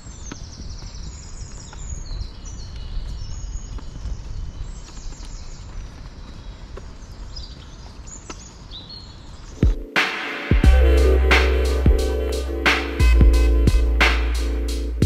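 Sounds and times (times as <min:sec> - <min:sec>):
footsteps on dirt path: 0:00.0 - 0:10.0
songbirds chirping: 0:00.0 - 0:15.0
steady low rumble: 0:10.6 - 0:15.0.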